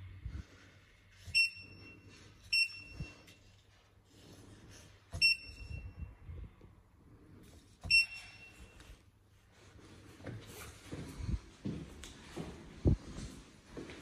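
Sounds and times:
short high beeps: 1.3s - 3.3s, 5.2s - 6.1s, 7.9s - 8.8s.

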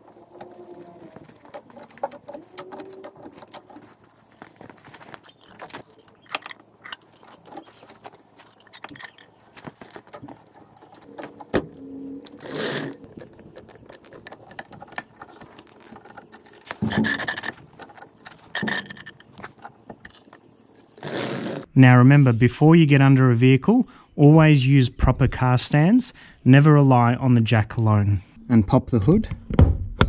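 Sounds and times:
metal clinks and rattles: 0.0s - 21.7s.

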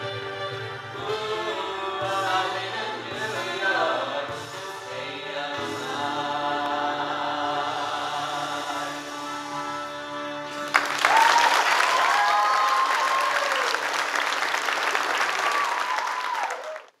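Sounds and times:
choir singing sustained chord: 0.9s - 10.8s
audience applause and cheers: 10.6s - 17.0s.

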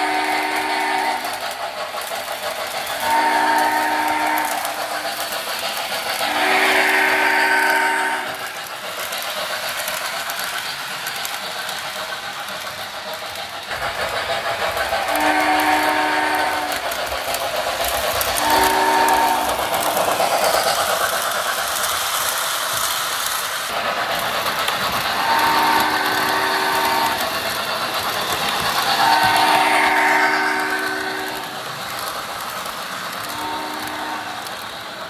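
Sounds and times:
model train steam whistle: 0.0s - 8.6s, 14.8s - 21.3s, 25.0s - 32.1s, 33.2s - 34.7s
model train running on track: 0.0s - 35.0s.

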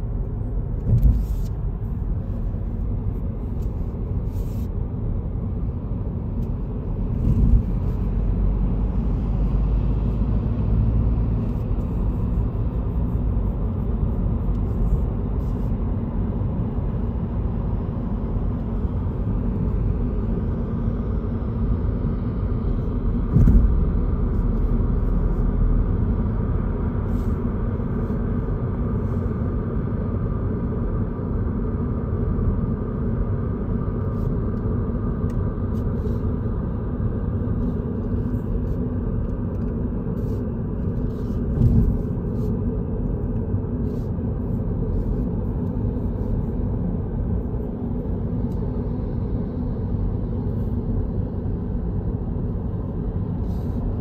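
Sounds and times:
road and tyre rumble inside car: 0.0s - 54.0s
short thumps: 23.3s - 23.9s.

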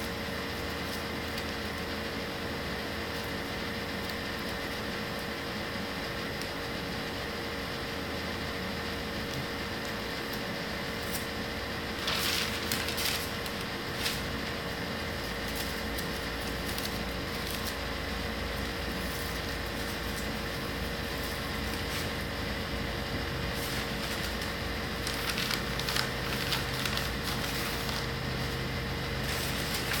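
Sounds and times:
steady background hum: 0.0s - 30.0s
paper rustling and crinkling: 10.2s - 22.6s, 23.4s - 30.0s.

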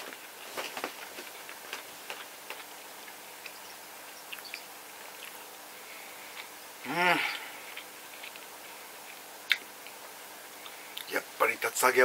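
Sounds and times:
chewing food: 1.2s - 5.5s, 7.3s - 11.1s.

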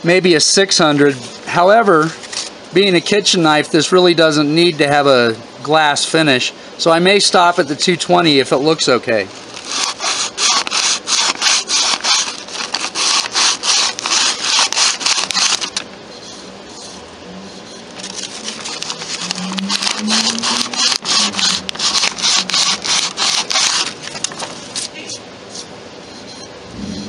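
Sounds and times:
sandpaper rasping on wood: 9.6s - 15.7s, 18.4s - 23.9s.

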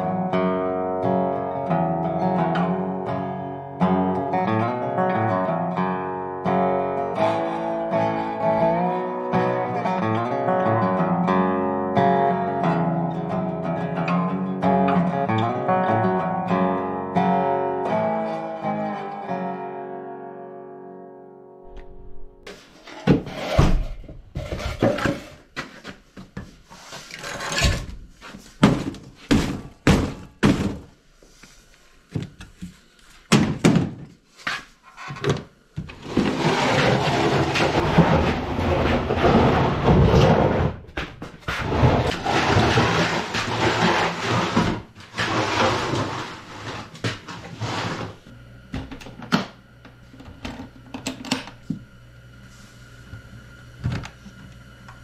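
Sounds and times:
crate scraping on concrete floor: 21.7s - 30.9s, 33.6s - 48.3s
wooden crate knocking and thumping: 28.6s - 30.9s, 33.3s - 34.1s.

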